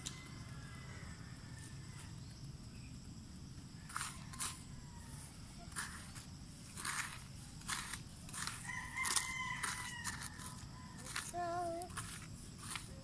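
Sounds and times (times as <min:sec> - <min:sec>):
toy scraping gravelly dirt: 0:03.8 - 0:13.0.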